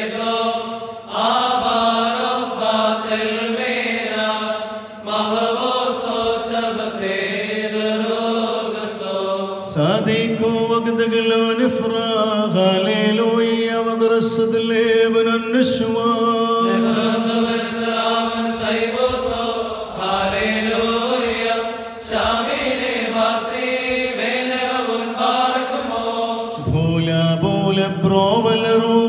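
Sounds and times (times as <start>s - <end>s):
voices chanting prayer: 0.0s - 29.0s
steady held note: 16.5s - 20.0s.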